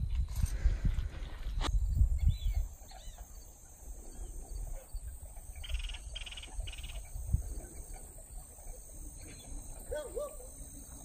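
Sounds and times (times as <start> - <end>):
wind rumble on microphone: 0.0 - 2.8, 4.0 - 8.2
frog trilling: 5.6 - 7.1.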